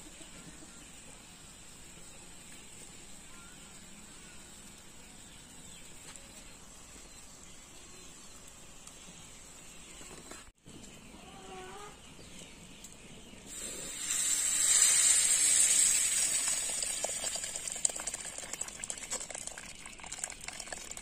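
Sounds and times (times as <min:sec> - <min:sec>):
faint bird chirps: 0:00.0 - 0:14.1
faint outdoor hiss: 0:00.0 - 0:21.0.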